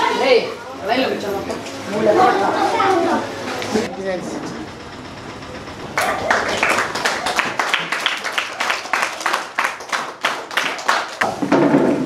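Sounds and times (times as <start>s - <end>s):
children clapping hands: 6.0s - 11.3s.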